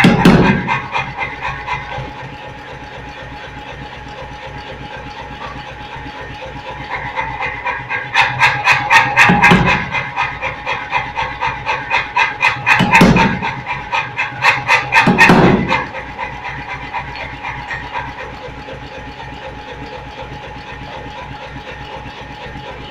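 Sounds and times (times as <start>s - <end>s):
hammer motor running: 0.0s - 22.9s
power hammer blows on steel: 7.2s - 16.8s.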